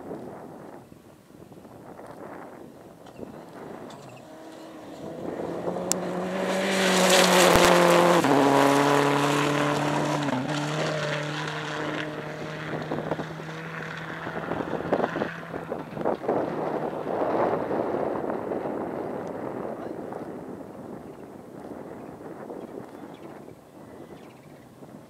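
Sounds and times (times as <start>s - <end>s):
tyres on gravel: 3.1s - 17.0s
rally car engine at high revs: 3.2s - 19.7s.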